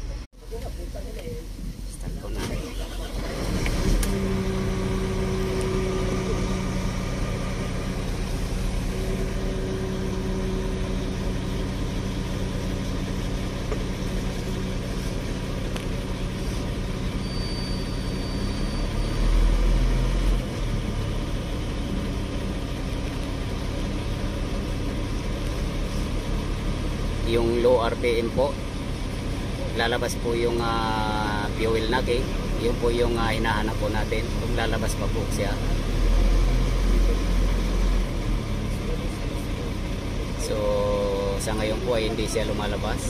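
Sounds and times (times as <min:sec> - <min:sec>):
diesel engine idling: 0:00.0 - 0:43.0.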